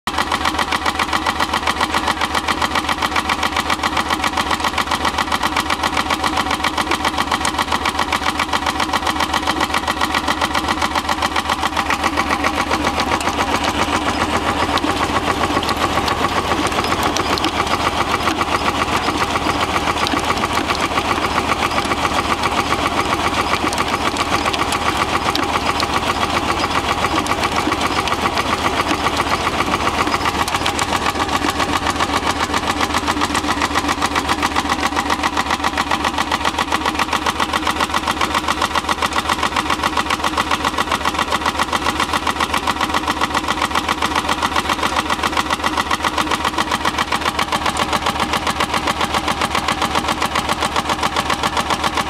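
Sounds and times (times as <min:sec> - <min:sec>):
tractor engine running: 0:00.1 - 0:52.0.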